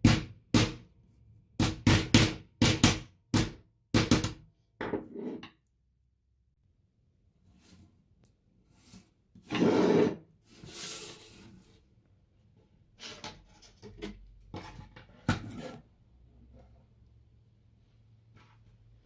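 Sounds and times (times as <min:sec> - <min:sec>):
scraping and rubbing noises: 0:05.0 - 0:05.5, 0:08.7 - 0:11.9, 0:12.9 - 0:16.8.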